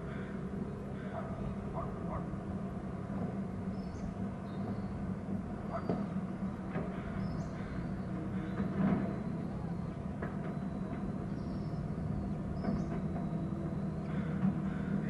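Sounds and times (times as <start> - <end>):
steady low drone: 0.0 - 15.0
faint bird chirps: 3.7 - 15.0.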